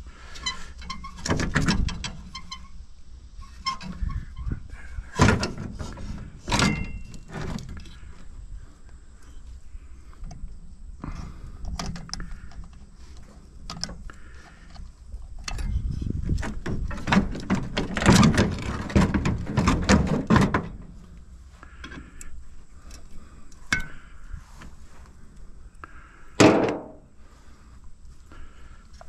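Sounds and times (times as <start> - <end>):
metal parts clanking: 5.1 - 8.0.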